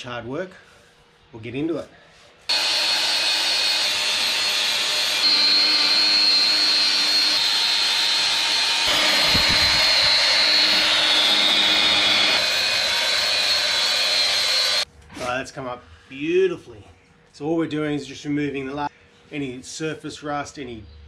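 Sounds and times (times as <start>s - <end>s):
power tool whine: 2.5s - 14.9s.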